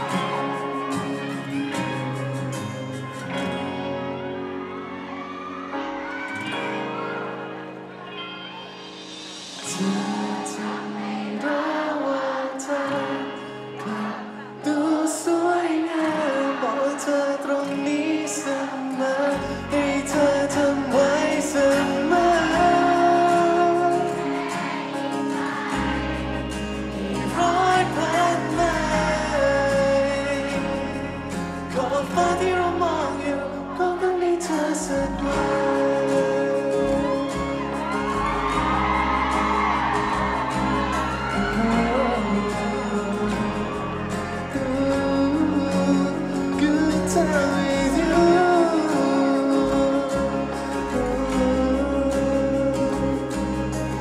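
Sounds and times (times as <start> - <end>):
instrumental accompaniment: 0.0 - 15.0, 17.8 - 54.0
man singing into a microphone: 9.6 - 26.0, 27.0 - 38.1, 41.0 - 54.0
bass line: 19.4 - 25.1, 25.7 - 54.0.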